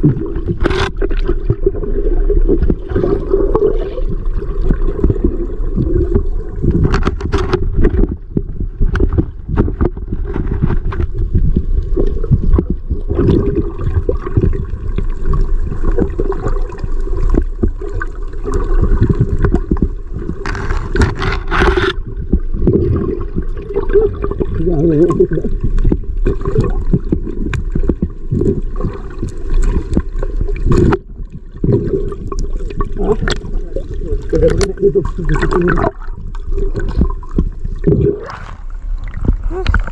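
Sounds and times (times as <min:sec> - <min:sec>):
underwater churning and gurgling: 0:00.0 - 0:39.9
water rush: 0:08.9 - 0:39.9.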